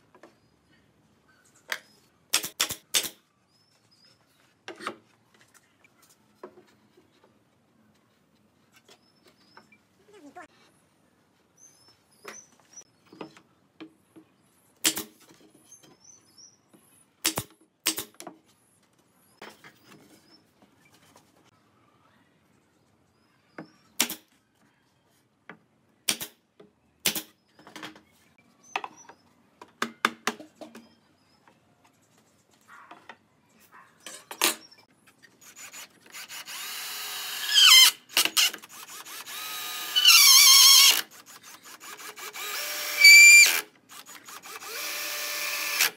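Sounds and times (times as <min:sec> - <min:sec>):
cordless drill boring into wood: 0:35.4 - 0:45.9.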